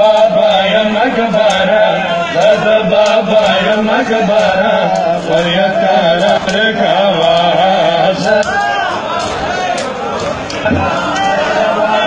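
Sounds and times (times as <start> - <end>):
men chanting a lament: 0.0 - 12.0.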